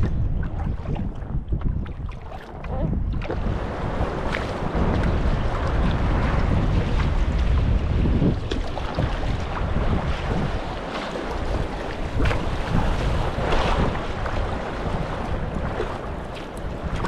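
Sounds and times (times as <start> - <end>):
paddle splashing: 0.0 - 17.0
wind buffeting microphone: 0.0 - 17.0
river water rushing and splashing: 3.4 - 17.0.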